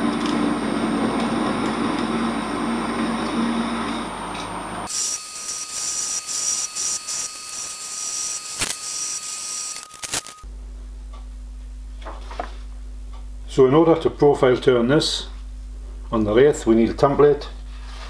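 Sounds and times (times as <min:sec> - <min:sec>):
low electrical hum: 0:00.0 - 0:18.0
lathe cutting metal rod: 0:04.9 - 0:10.3.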